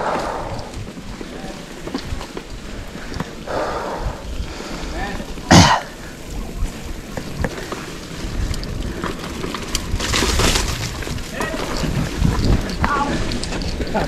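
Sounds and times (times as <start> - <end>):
wind rumble on microphone: 0.0 - 14.0
person coughing: 5.5 - 5.9.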